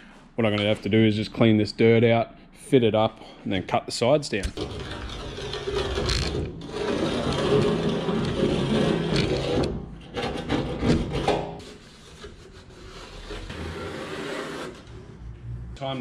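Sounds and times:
scraping in metal tray channel: 4.5 - 15.2.

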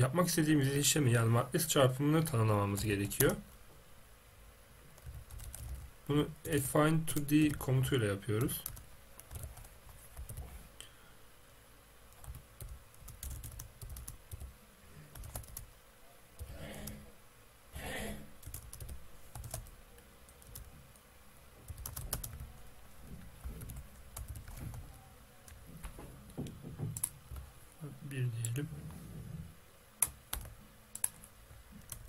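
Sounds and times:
typing on a computer keyboard: 5.0 - 5.8, 8.4 - 10.4, 12.1 - 14.5, 15.1 - 15.6, 18.4 - 19.7, 21.7 - 22.4, 23.6 - 24.8, 26.9 - 27.1.

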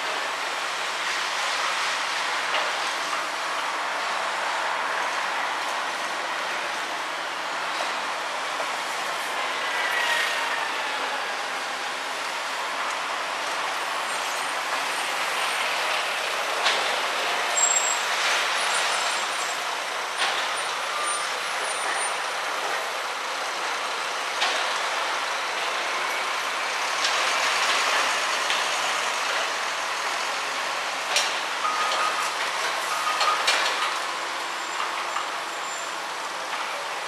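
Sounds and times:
traffic engine and tyre noise: 0.0 - 37.0
high squeal: 9.7 - 11.0, 17.6 - 18.1.

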